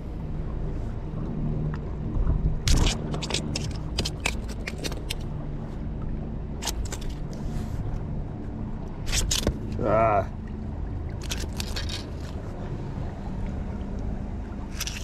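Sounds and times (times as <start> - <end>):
steady low hum: 0.0 - 15.0
fish handling clicks and scrapes: 2.7 - 5.3, 6.6 - 8.0, 9.0 - 9.8, 11.2 - 12.6, 14.7 - 15.0.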